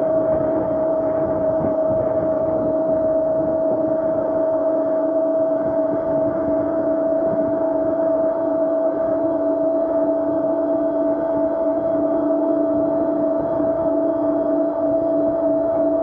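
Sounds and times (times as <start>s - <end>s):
wind and tyre rumble: 0.0s - 9.3s.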